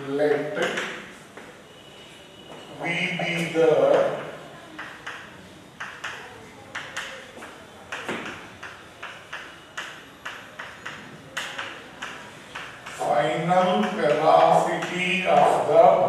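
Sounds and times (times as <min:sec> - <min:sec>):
chalk tapping on a blackboard: 0:03.9 - 0:15.6.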